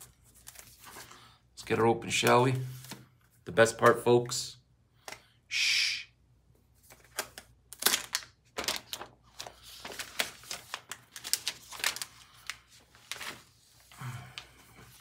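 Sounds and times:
plastic wrap crinkling: 6.9 - 13.6.

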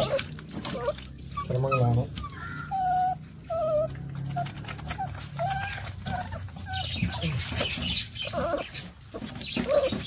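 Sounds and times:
puppy whimpering: 0.0 - 10.0.

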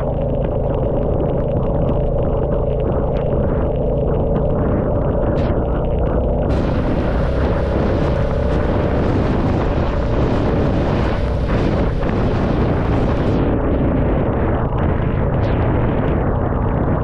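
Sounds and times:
motorcycle engine running: 0.0 - 17.0
wind buffeting microphone: 0.0 - 17.0
hiss of rain on wet road: 6.5 - 13.3.

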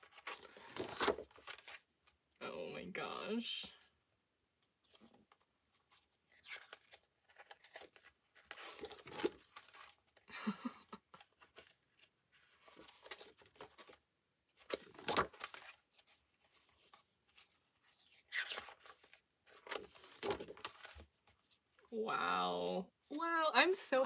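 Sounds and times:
paper pages rustling: 0.0 - 1.9, 4.8 - 10.3, 11.0 - 21.6.

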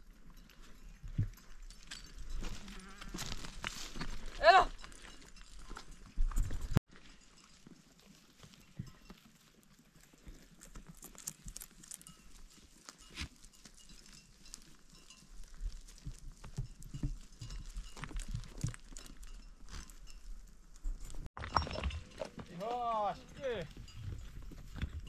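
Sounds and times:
hooves clicking and knocking: 0.0 - 25.0.

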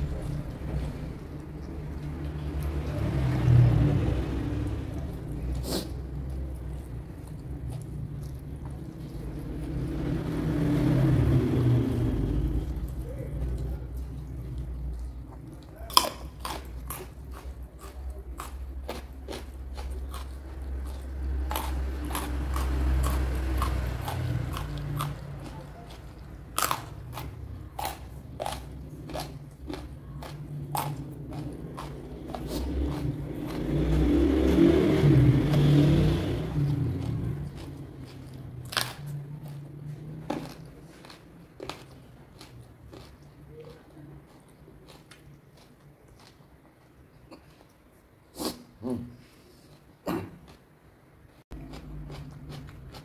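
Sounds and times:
low rumble: 0.0 - 5.4
crisp crunching and chewing: 12.5 - 34.1, 36.5 - 47.8, 51.5 - 53.0.

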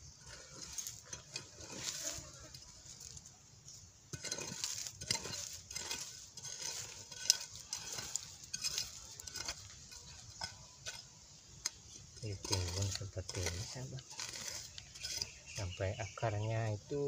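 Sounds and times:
metal trowel scraping gritty soil: 0.0 - 17.0.

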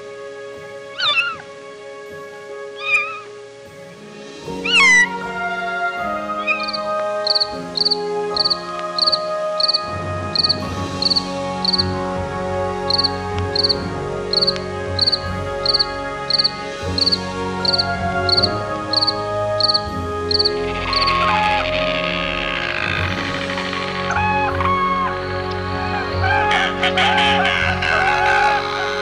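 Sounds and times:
insect chirping: 0.9 - 1.6, 2.6 - 5.1, 6.2 - 11.9, 12.9 - 26.5.

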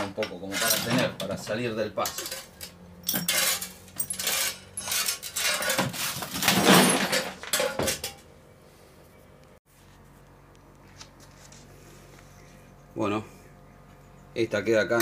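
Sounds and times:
metal parts clattering in bucket: 0.0 - 8.2.

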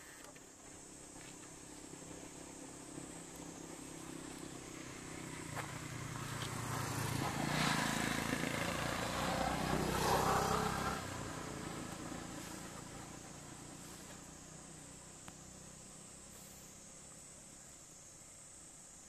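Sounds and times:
motorbike passing by: 1.8 - 17.0.

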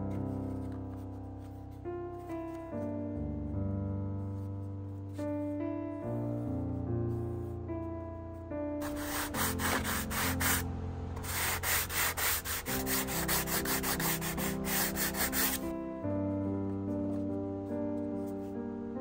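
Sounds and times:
background music: 0.0 - 19.0
sanding wood rasping: 8.8 - 10.6, 11.2 - 15.6.

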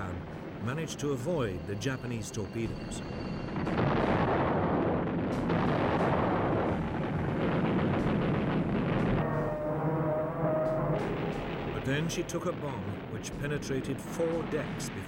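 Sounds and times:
explosions: 2.6 - 15.0
heavy gunfire: 3.6 - 9.4.

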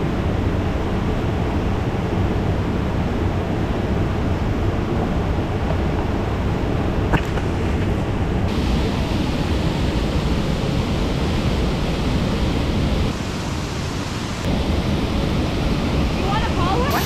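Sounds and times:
waterfall rushing: 8.5 - 17.0.

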